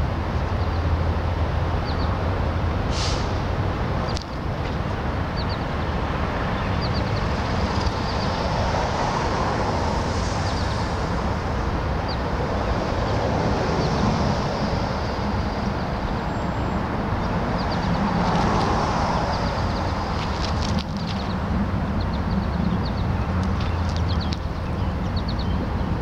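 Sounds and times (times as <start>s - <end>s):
hiss: 2.9s - 3.5s.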